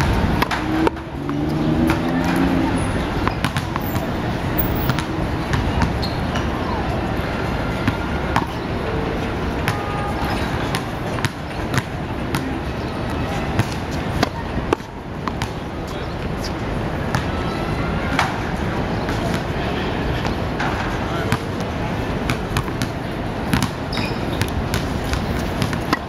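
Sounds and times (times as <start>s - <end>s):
city street noise: 0.0s - 26.0s
balls bouncing and hitting wall: 3.2s - 6.5s, 22.3s - 26.0s.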